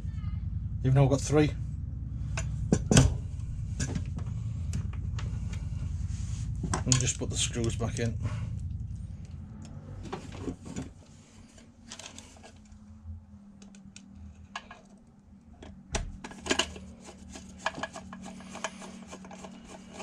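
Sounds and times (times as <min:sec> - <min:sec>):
faint steady hum: 0:00.0 - 0:20.0
metal scraping on plastic: 0:16.2 - 0:20.0.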